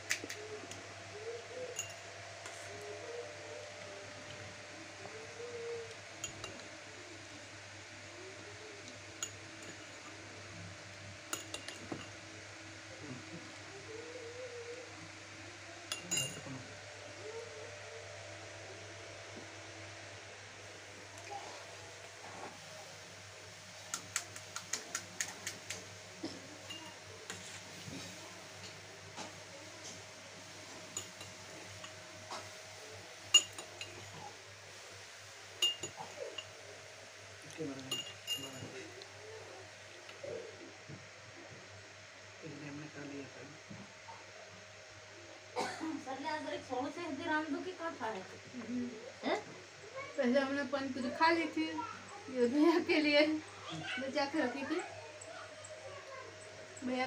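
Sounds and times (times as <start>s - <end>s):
spoon clinking against glass: 1.7s - 2.0s, 6.2s - 6.6s, 11.3s - 12.2s, 15.9s - 16.6s, 26.7s - 27.0s, 30.9s - 32.0s, 33.3s - 34.2s, 35.6s - 36.5s, 37.8s - 38.8s.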